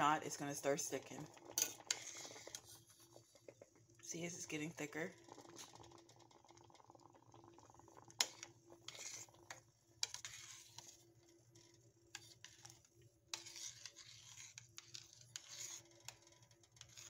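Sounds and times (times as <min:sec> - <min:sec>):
spoon scraping a pot: 0:00.3 - 0:03.7, 0:08.0 - 0:17.0.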